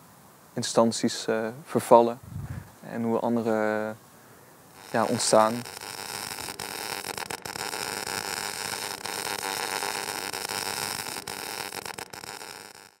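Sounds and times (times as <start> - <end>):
arc welding crackling hiss: 2.9 - 4.0, 4.6 - 13.0.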